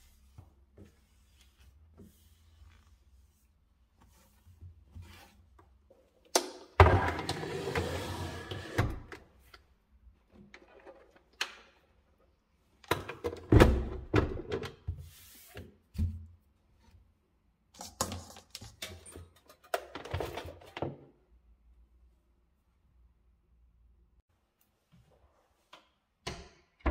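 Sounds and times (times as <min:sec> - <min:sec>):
appliances knocking and thudding: 0:06.6 - 0:09.1.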